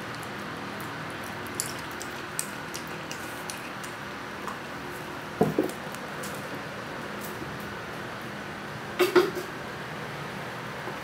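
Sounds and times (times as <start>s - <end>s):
cat chewing and licking: 0.0s - 5.1s.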